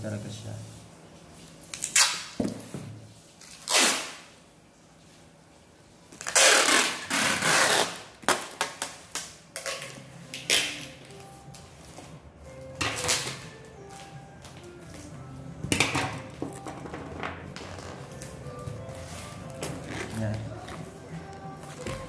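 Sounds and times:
packing tape ripping off roll: 1.7s - 2.4s, 3.4s - 4.3s, 6.1s - 11.2s, 12.8s - 13.6s.

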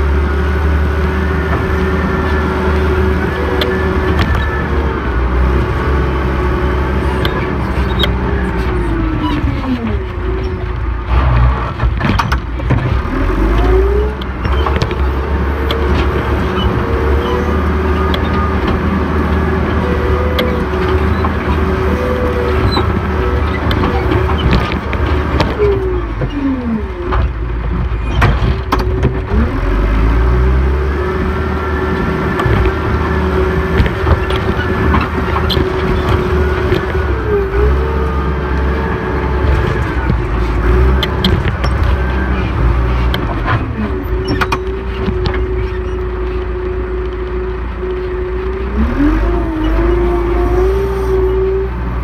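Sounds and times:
diesel engine under load: 0.0s - 52.0s
metal knocks and clanks: 7.2s - 17.1s, 22.5s - 29.4s.

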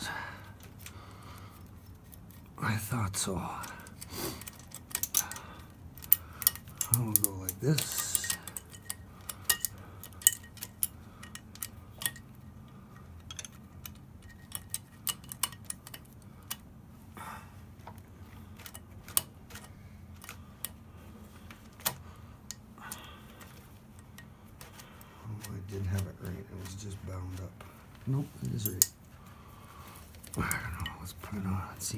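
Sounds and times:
small metal clicks and clinks: 3.6s - 16.6s, 18.6s - 20.8s, 28.4s - 29.0s.

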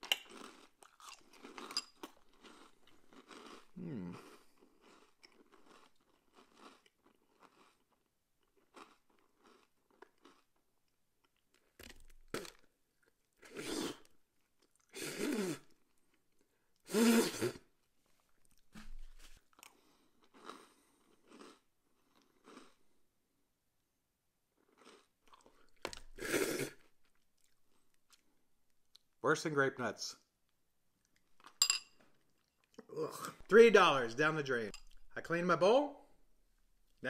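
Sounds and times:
mouth chewing crunchy cereal: 0.0s - 18.8s, 19.4s - 23.0s, 24.6s - 29.1s
throat noises: 3.7s - 4.4s.

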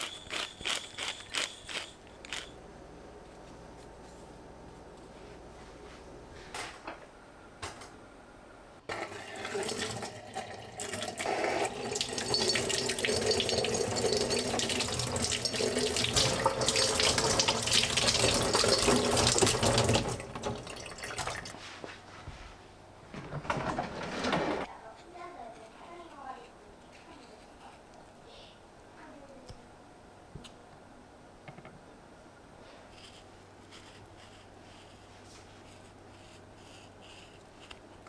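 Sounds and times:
tap water running into sink: 8.9s - 21.6s.

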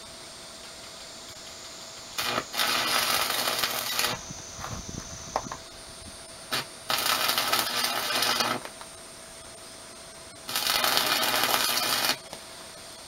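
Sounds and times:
electric arc welding crackle: 1.2s - 9.0s, 10.4s - 12.5s.

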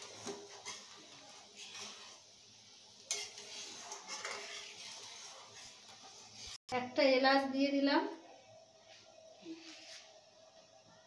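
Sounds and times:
spatula scraping metal pan: 0.0s - 2.2s, 3.0s - 6.6s.

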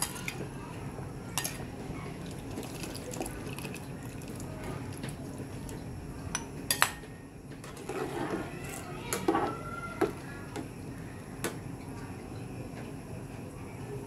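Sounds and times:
liquid stirred in a pot: 1.3s - 7.0s, 7.6s - 11.5s.

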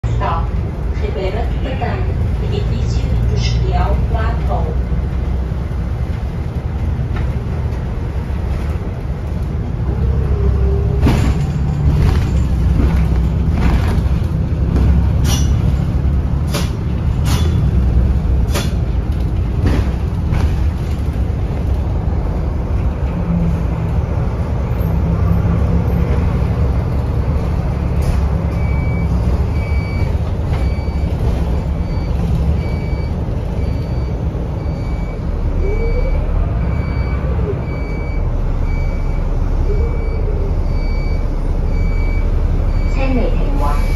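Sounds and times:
bus engine and road rumble: 0.0s - 43.9s.

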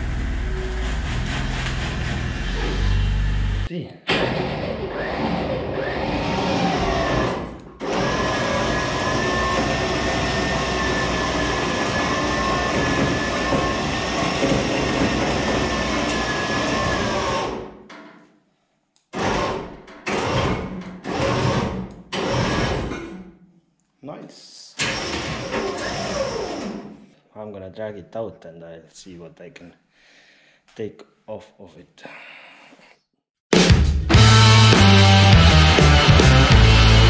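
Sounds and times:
electric winch whining: 0.0s - 17.7s, 24.8s - 26.9s
car body dragging on concrete: 0.7s - 3.6s.

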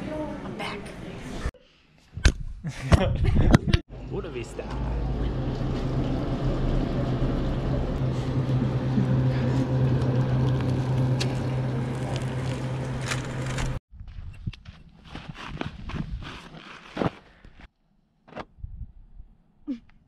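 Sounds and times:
low machine hum: 3.9s - 13.8s.

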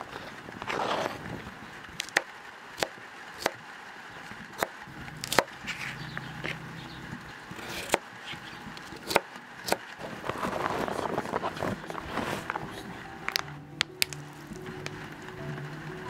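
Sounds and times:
knife chopping on plastic board: 8.8s - 9.8s.

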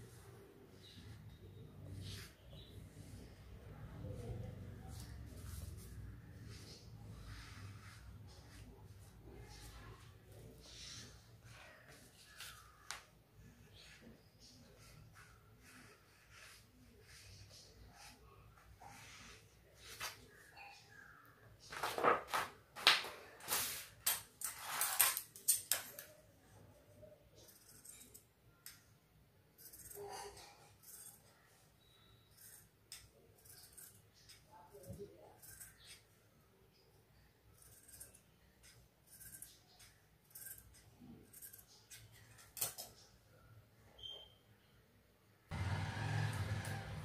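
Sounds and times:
paper rustling and crinkling: 21.7s - 23.9s
scissors snipping fabric: 27.4s - 28.9s, 29.6s - 31.3s, 32.3s - 36.2s, 37.6s - 43.1s.

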